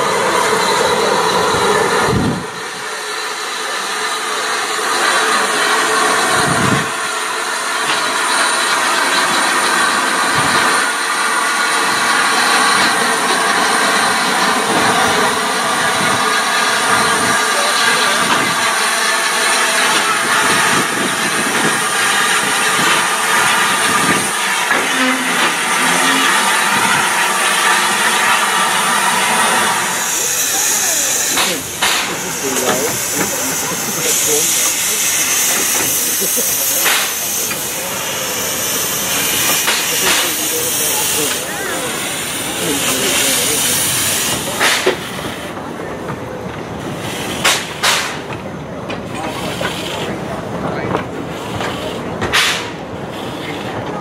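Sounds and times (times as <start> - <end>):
steam hissing: 0.0 - 45.6, 46.8 - 48.4, 49.2 - 54.0
steam train wheels on rails: 0.0 - 54.0.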